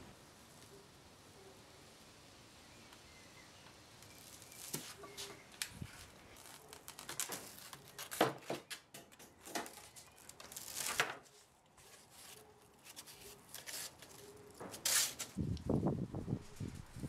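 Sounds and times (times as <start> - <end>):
foam and aluminium rustling: 3.6 - 17.0.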